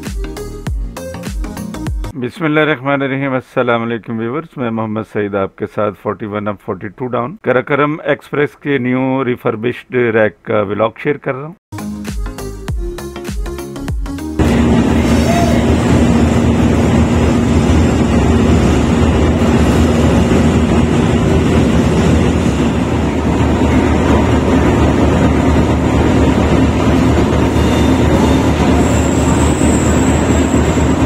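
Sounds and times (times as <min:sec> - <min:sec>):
locomotive engine hum: 0:14.4 - 0:31.0
rail and wheel noise: 0:14.4 - 0:31.0.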